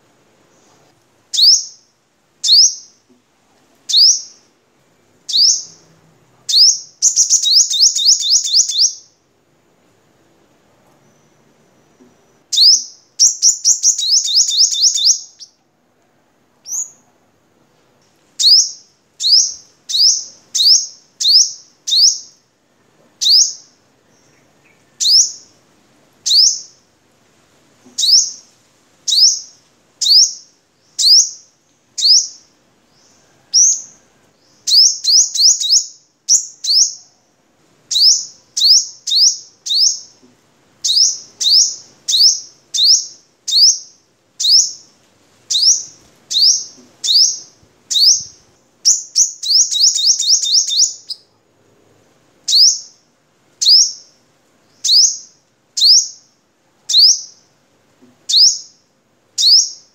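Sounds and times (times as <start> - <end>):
sunbird singing sharp chirps: 1.3 - 3.0, 3.9 - 4.5, 5.3 - 5.9, 6.5 - 9.2, 12.5 - 15.6, 18.4 - 22.4, 23.2 - 25.5, 26.3 - 26.8, 28.0 - 28.4, 29.1 - 37.1, 37.9 - 40.2, 40.8 - 44.9, 45.5 - 51.3, 52.5 - 53.0, 53.6 - 56.3, 56.9 - 57.5, 58.3 - 58.8, 59.4 - 59.9.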